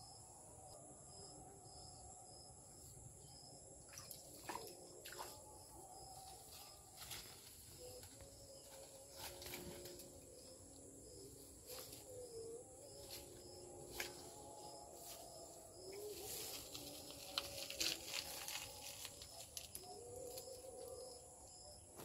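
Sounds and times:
high insect drone: 0:00.0 - 0:22.0.

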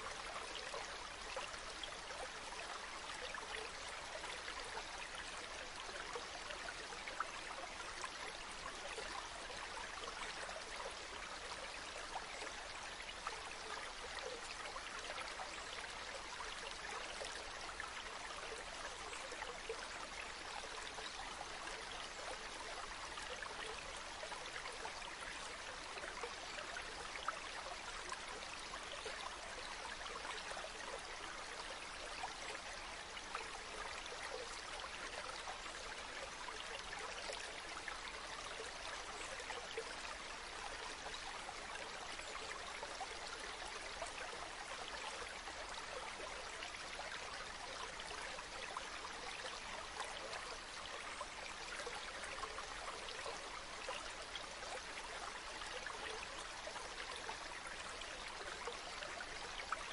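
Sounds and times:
small stream flowing: 0:00.0 - 0:59.9.

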